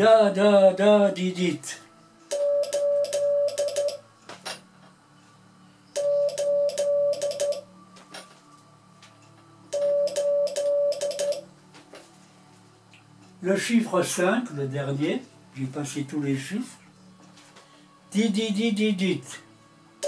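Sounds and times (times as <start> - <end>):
morse code beeping tone: 2.3 - 4.0, 6.0 - 7.6, 9.8 - 11.4.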